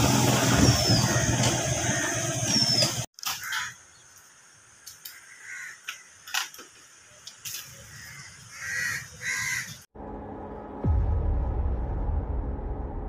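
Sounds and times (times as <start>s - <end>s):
crows cawing: 1.0s - 2.6s, 3.2s - 3.8s, 5.0s - 6.2s, 7.9s - 9.8s.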